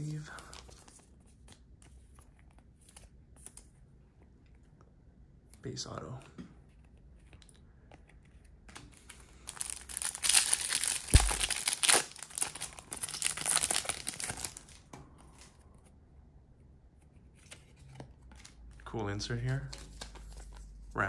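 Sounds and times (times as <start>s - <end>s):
foil wrapper tearing and crinkling: 9.5s - 14.8s.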